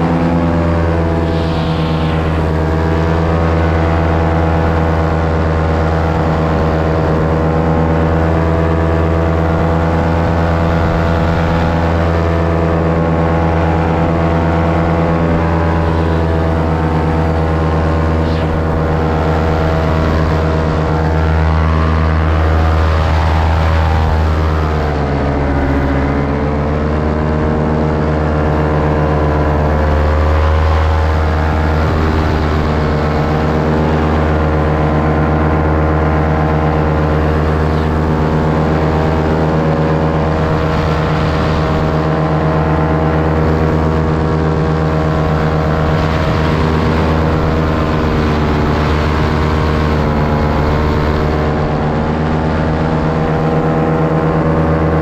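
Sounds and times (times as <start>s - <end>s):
paramotor engine and propeller: 0.0s - 55.0s.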